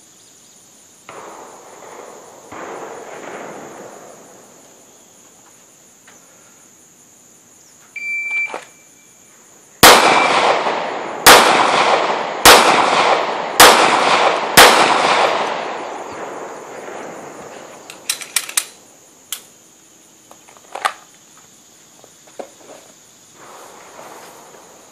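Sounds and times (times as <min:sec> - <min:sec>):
handgun shots with echo: 0:09.8 - 0:15.6.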